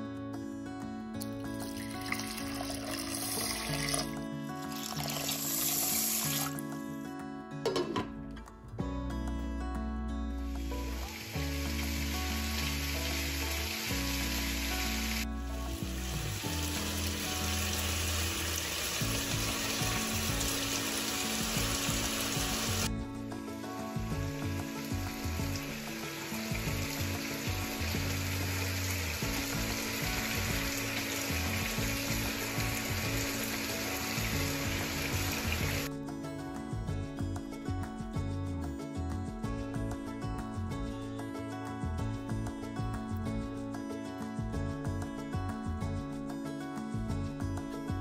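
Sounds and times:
background music with held notes: 0.0 - 48.0
rice pot sizzling hiss: 4.7 - 6.6, 10.5 - 22.9, 24.5 - 35.9.

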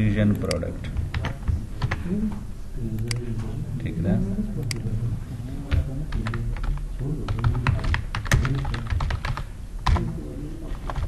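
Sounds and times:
computer keyboard typing: 0.3 - 2.0, 5.7 - 11.0.

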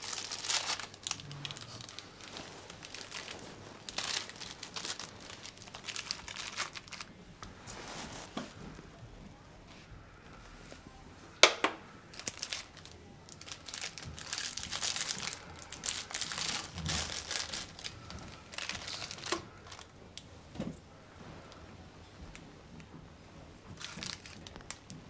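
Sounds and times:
plastic wrapper crinkling: 0.0 - 7.1, 11.4 - 19.9, 23.7 - 25.0.

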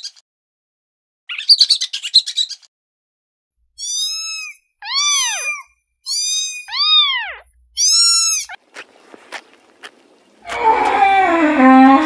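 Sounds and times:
kitten mewing: 3.8 - 8.6.

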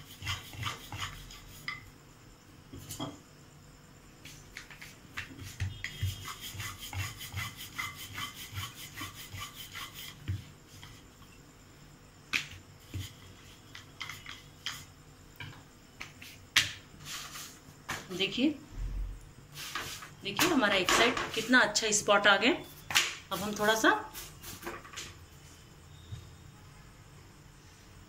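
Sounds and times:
rolling pin rolling dough: 0.0 - 1.9, 4.2 - 11.4, 12.3 - 18.1, 19.6 - 21.9.

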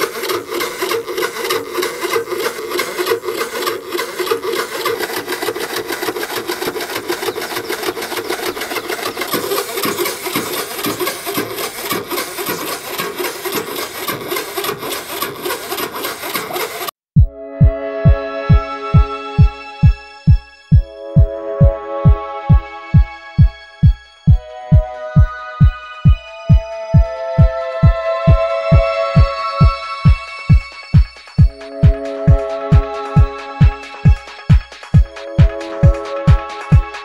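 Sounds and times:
air compressor buzzing rattle: 0.0 - 17.0.

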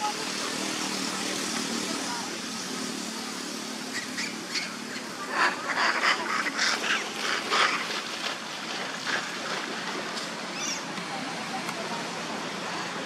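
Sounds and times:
monkeys squealing: 3.9 - 7.8, 10.5 - 10.9.

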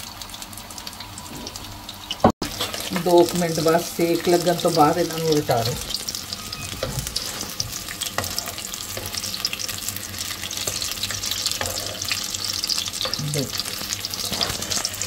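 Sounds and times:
frying oil sizzling: 0.0 - 15.0.

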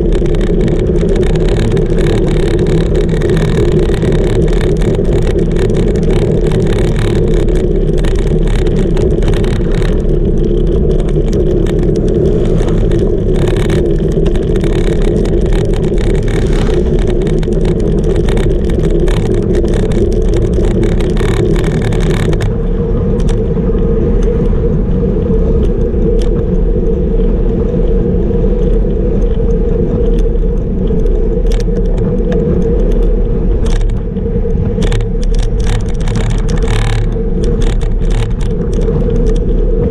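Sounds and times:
tyres rushing on asphalt: 0.0 - 29.0
wind rushing over camera: 0.0 - 39.9.

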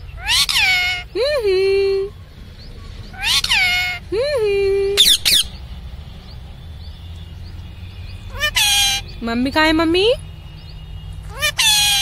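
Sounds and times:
parakeet drawn-out calls: 0.0 - 1.2, 2.7 - 4.1, 5.0 - 6.5, 7.4 - 9.2, 11.2 - 12.0
parakeet sharp squawks: 0.2 - 1.1, 3.1 - 4.0, 5.0 - 5.6, 8.3 - 9.1, 11.3 - 12.0.

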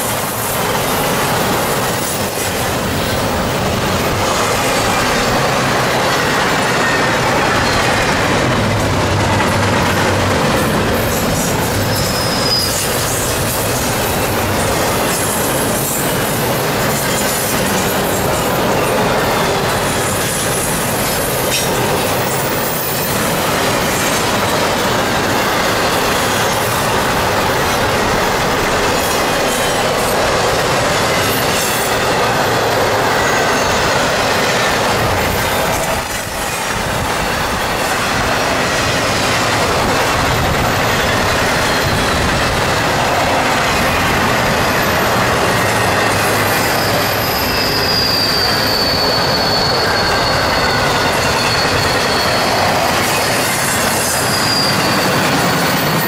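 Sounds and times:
train wheels rumbling on rails: 0.0 - 56.0
high wheel squeal: 10.5 - 38.6, 43.2 - 56.0.

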